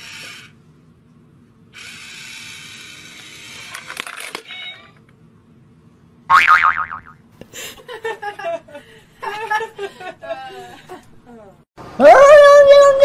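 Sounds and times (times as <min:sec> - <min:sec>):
small motor whirring: 0:00.0 - 0:00.6, 0:01.7 - 0:05.0.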